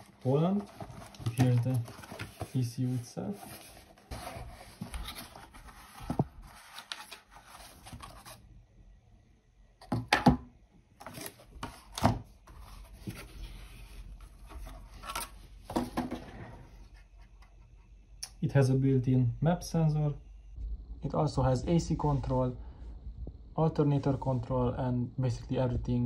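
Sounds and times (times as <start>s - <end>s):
cardboard rubbing and scraping: 0.4s - 8.4s.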